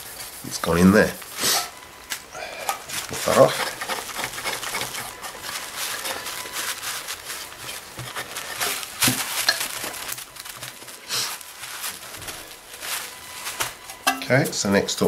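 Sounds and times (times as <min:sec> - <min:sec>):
faint steady whistle: 0:01.4 - 0:02.8
cloth rag rubbing on metal: 0:02.8 - 0:14.7.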